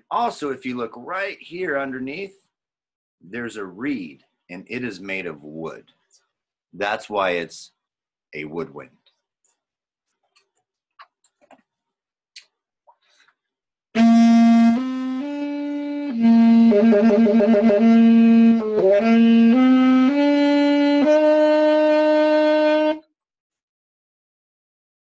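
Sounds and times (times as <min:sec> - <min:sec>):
saxophone playing: 0:14.0 - 0:23.1.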